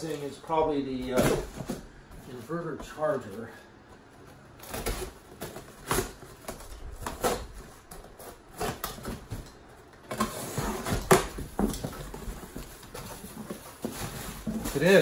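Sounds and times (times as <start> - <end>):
box cutter slitting tape: 4.6 - 9.3
cardboard flaps tearing: 4.6 - 15.0.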